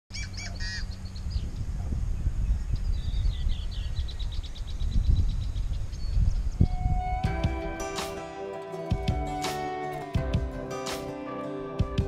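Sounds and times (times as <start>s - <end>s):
marsh birds chirping: 0.1s - 6.7s.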